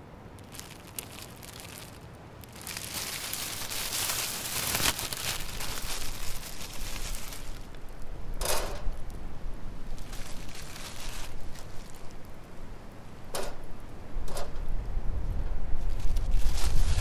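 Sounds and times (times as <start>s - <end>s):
campfire crackling and popping: 0.4s - 8.0s.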